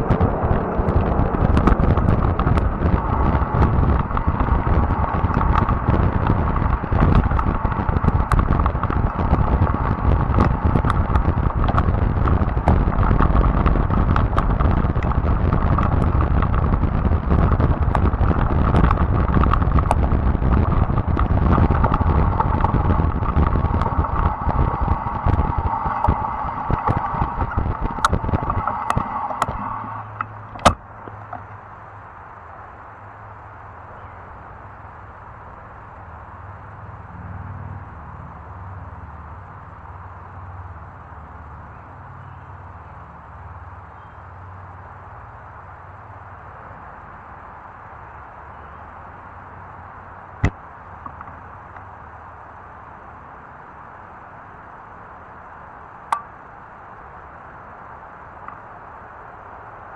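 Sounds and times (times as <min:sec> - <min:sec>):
bike tyres rumbling on gravel: 0:00.0 - 0:31.5
gravel clicks and rattles: 0:00.0 - 0:31.6.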